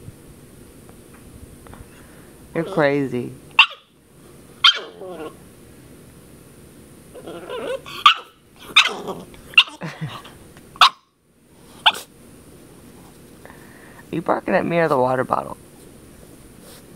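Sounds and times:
puppy whining: 2.6s - 3.0s, 4.6s - 5.4s, 7.1s - 10.4s
puppy yapping: 3.5s - 4.0s, 4.6s - 5.4s, 7.1s - 9.9s, 10.8s - 11.1s, 11.8s - 12.1s.

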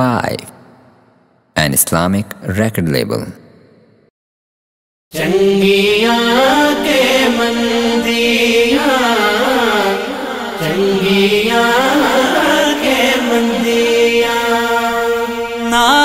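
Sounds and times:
chant-like gliding melody: 5.2s - 16.0s.

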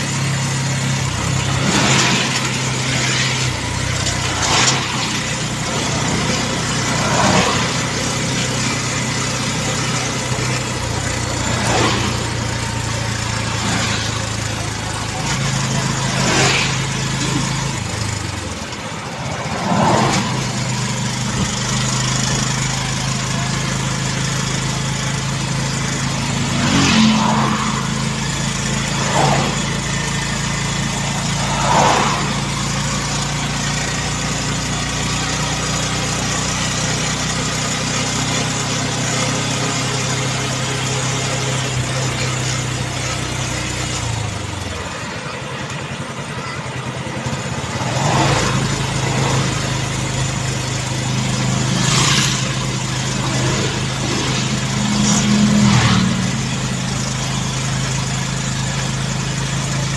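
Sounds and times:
wind and road noise: 0.0s - 23.0s, 25.8s - 36.8s, 40.6s - 59.8s
motorcycle engine running: 0.0s - 59.9s
rushes of noise: 26.1s - 35.1s.

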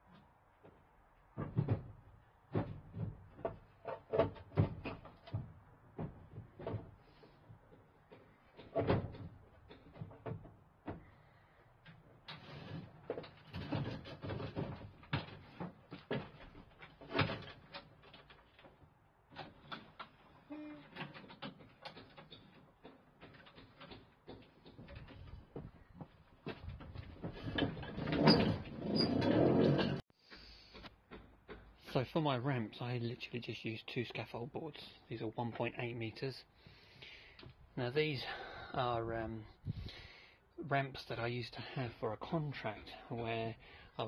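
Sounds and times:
mower and gear clunking in a van: 0.1s - 20.3s, 20.9s - 30.0s.

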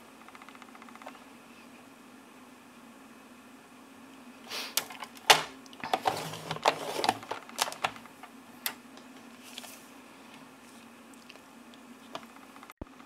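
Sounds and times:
paper trimmer clicking and scraping: 5.8s - 8.0s.

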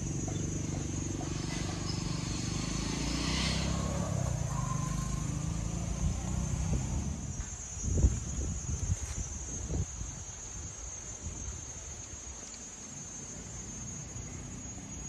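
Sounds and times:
street traffic: 0.0s - 7.5s
vehicle engine running: 0.0s - 7.5s.

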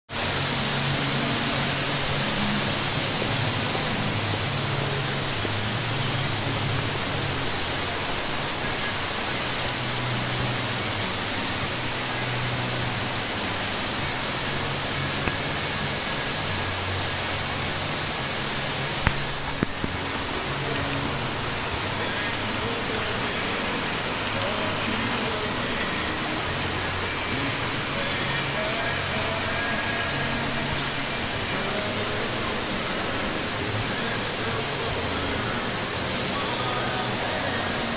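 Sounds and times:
fountain water splashing: 0.1s - 37.9s
murmur of voices: 0.2s - 37.9s.

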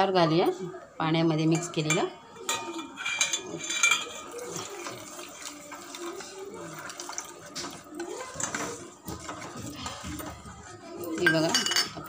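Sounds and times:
ladle stirring: 1.5s - 12.0s
ladle clinking against pot: 1.6s - 6.2s, 11.2s - 12.0s
slurry pouring into gravy: 4.0s - 10.8s.

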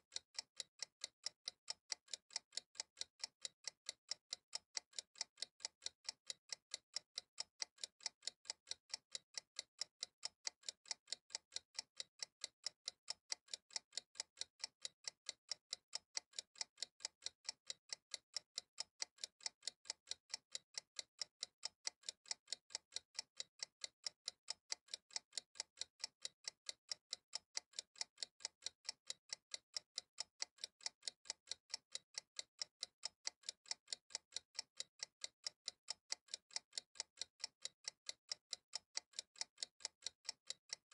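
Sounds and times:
steady ticking: 0.1s - 40.9s.

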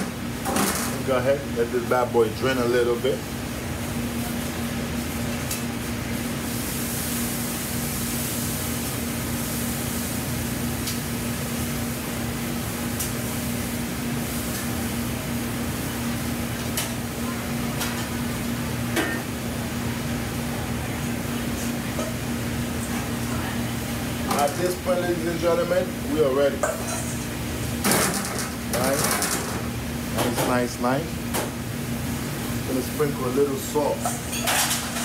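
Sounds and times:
ventilation fans whirring: 0.0s - 35.0s.

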